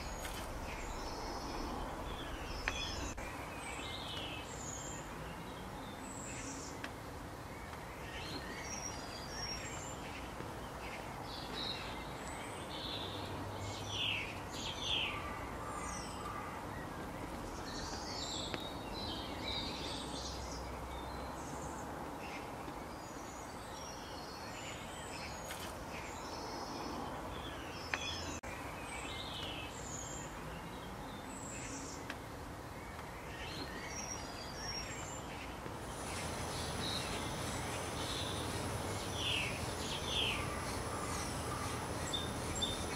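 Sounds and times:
outdoor background hiss: 0.0s - 42.9s
songbirds chirping: 0.0s - 42.9s.

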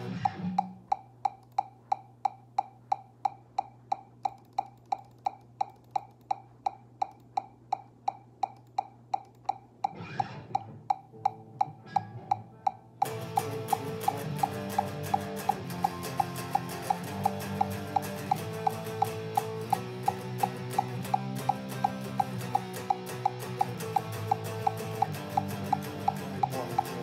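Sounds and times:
electric guitar playing loudly: 0.0s - 0.6s, 10.0s - 12.3s, 13.0s - 27.0s
metronome clicking: 0.0s - 27.0s.

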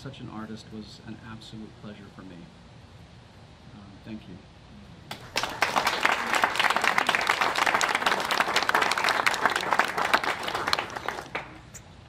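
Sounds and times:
audience applauding: 5.1s - 11.7s.

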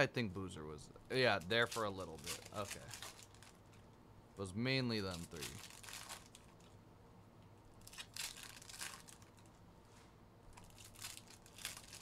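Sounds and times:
trading cards swishing and rustling: 1.2s - 3.6s.

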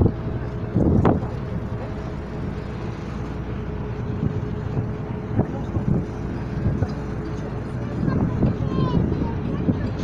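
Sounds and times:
boat engine humming: 0.0s - 10.0s
faint voices: 5.0s - 10.0s.

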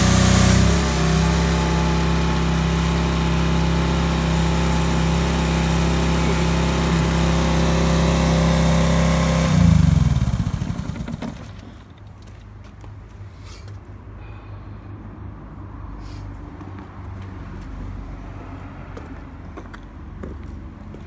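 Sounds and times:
pressure washer engine running: 0.0s - 11.8s.

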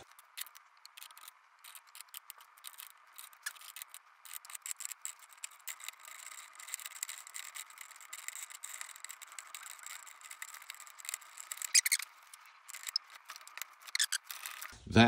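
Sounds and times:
metal gears clicking and rattling: 0.0s - 14.8s.

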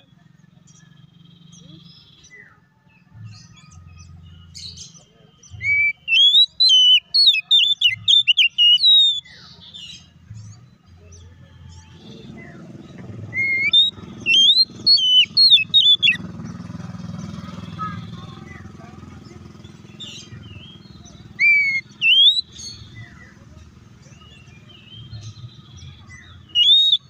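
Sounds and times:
bird whistling song: 3.3s - 10.1s, 13.2s - 18.6s, 19.3s - 27.0s.

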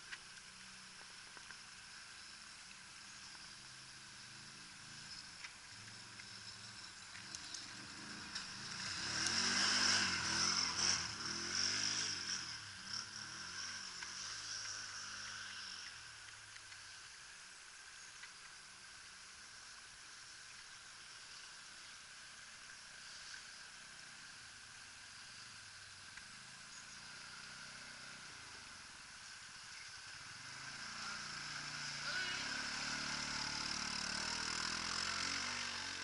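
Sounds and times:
faint steady hiss: 0.0s - 36.0s
quad bike engine: 4.0s - 16.9s, 22.9s - 36.0s.

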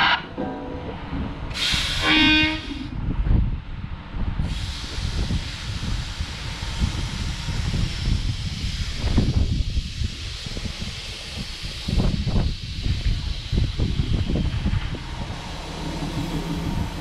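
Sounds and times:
air hiss burst: 1.5s - 2.9s, 4.4s - 15.3s
horn-like tone: 2.0s - 2.8s.

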